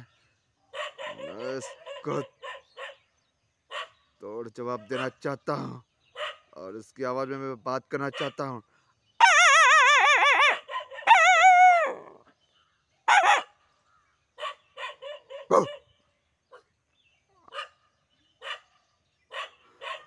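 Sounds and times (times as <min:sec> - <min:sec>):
dog barking: 0:00.7 - 0:03.1, 0:03.7 - 0:04.0, 0:04.7 - 0:05.2, 0:06.2 - 0:06.6, 0:08.1 - 0:08.5, 0:10.2 - 0:12.1, 0:13.1 - 0:13.5, 0:14.4 - 0:16.6, 0:17.4 - 0:20.0
man imitating dog howl: 0:01.1 - 0:02.3, 0:09.2 - 0:12.3, 0:15.4 - 0:15.8.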